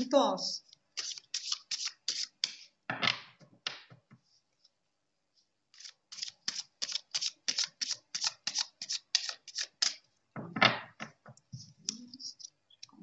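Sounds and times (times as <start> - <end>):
cards being shuffled: 1.0 - 2.7, 5.8 - 10.0.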